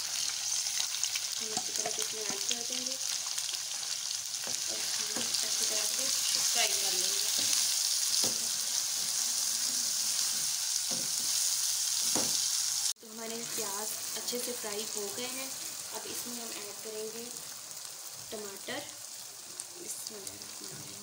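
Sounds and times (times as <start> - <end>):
onions sizzling in hot oil: 0.0 - 21.0
wooden spatula scraping a pan: 4.5 - 12.4.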